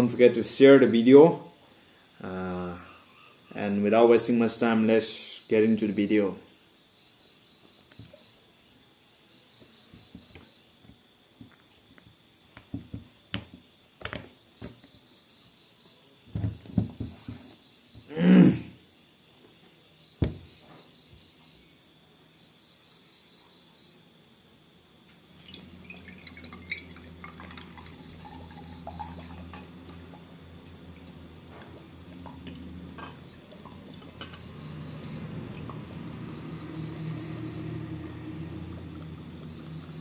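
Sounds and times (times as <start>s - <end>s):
crickets chirping: 0.0s - 40.0s
liquid pouring into glass: 25.4s - 31.2s, 32.1s - 40.0s.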